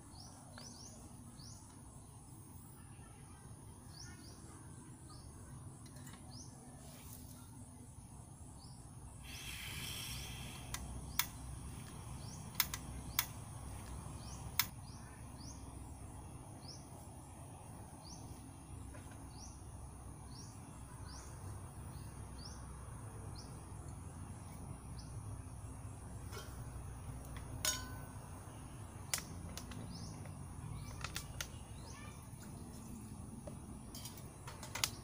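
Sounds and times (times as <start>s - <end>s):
cookware clicks and knocks: 27.6s - 28.1s.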